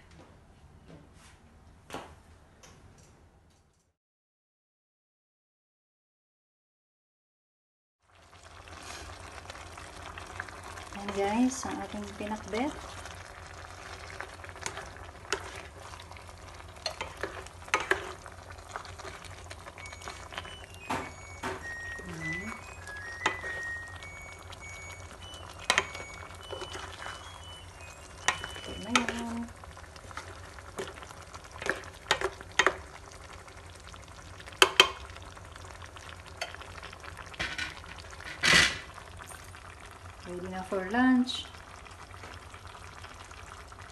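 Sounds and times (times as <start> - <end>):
simmering sizzle: 8.0 - 43.9
spatula stirring wet vegetables: 10.6 - 33.0
utensil knocking and scraping pot: 16.8 - 18.2.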